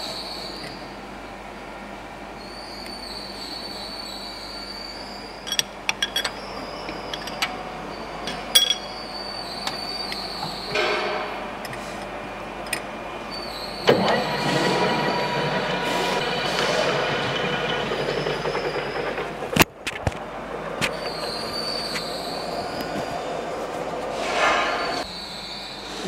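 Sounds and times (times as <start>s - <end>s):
lathe high whine: 13.3s - 19.6s
lathe spindle starting: 13.6s - 23.0s.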